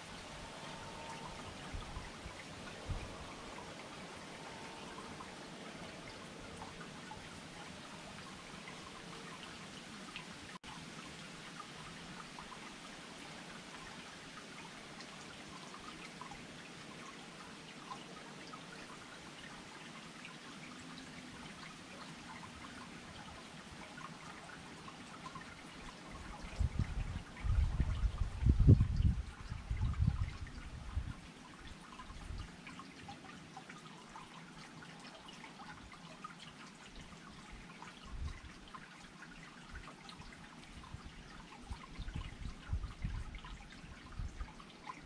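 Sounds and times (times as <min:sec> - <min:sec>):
garden fountain trickling: 0:00.0 - 0:45.0.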